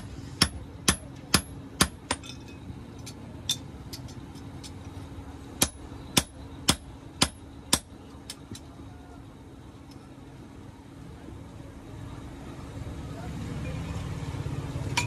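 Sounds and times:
hammer striking iron on anvil: 0:00.0 - 0:02.5, 0:05.6 - 0:07.9
steady low hum: 0:00.0 - 0:13.3.

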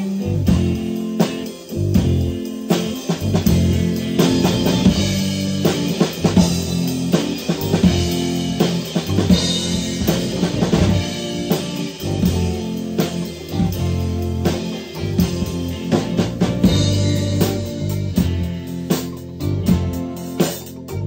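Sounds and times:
bass guitar: 0:00.0 - 0:21.0
drum kit: 0:00.0 - 0:21.0
electric guitars: 0:00.0 - 0:21.0.

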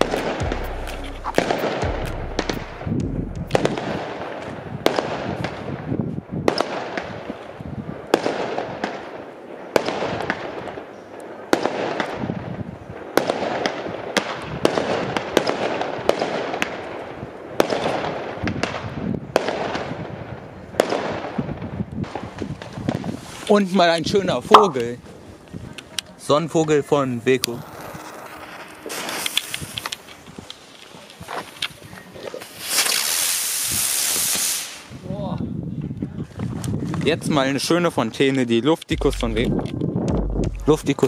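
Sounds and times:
fireworks banging with echo: 0:00.0 - 0:07.4, 0:24.4 - 0:25.1.

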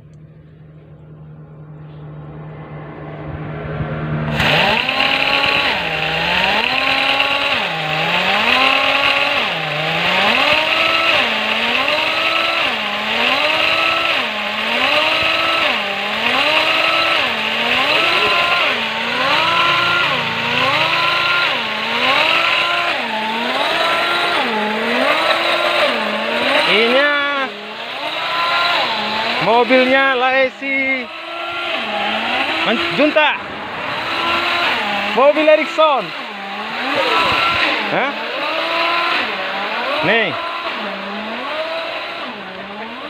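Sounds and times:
air-powered jack pumping: 0:04.3 - 0:43.0.

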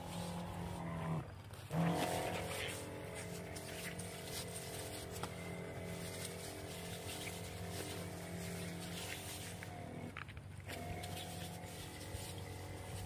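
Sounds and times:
sprayer pump humming: 0:00.0 - 0:13.0.

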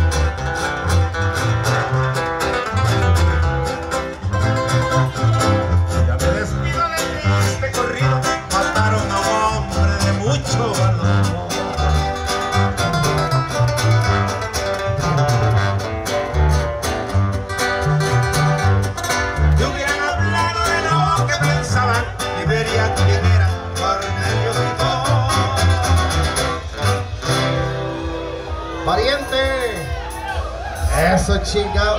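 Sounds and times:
sousaphone bass notes: 0:00.0 - 0:28.7
guitar: 0:00.0 - 0:31.9
person singing: 0:19.4 - 0:26.7
drums: 0:23.6 - 0:31.9.

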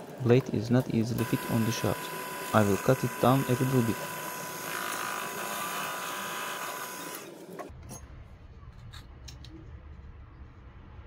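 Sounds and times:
lathe whining: 0:01.1 - 0:07.7.

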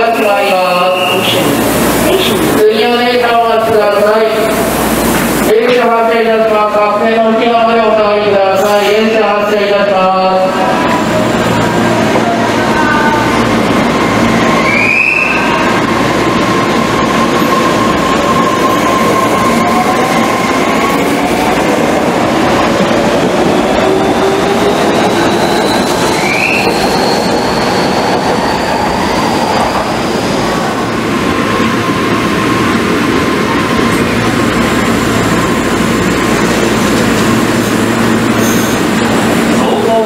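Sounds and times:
train wheel and rail noise: 0:00.0 - 0:40.0
wheel squeals: 0:24.8 - 0:29.3, 0:38.4 - 0:38.8.

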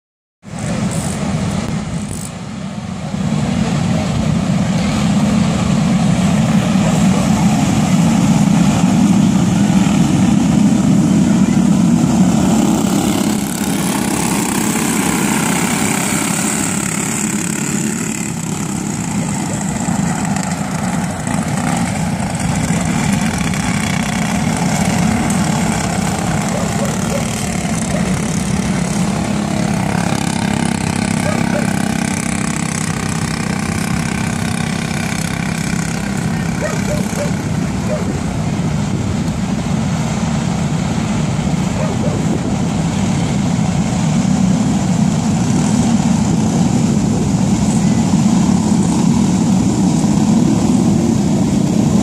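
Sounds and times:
racing kart engines droning: 0:00.4 - 0:52.0.

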